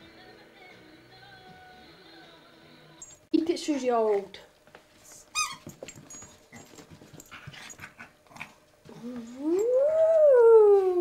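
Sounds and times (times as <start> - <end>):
dog scuffling with toy: 4.9 - 8.1
dog howling: 9.0 - 11.0.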